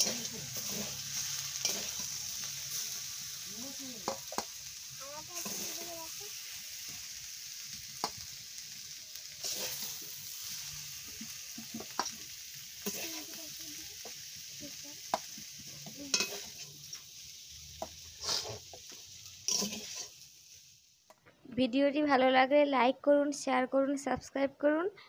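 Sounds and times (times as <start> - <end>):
metal spatula scraping steel pan: 0.0 - 2.2, 12.8 - 13.3, 16.0 - 16.8, 18.1 - 18.7, 19.4 - 20.2
steady high hiss: 0.0 - 21.1.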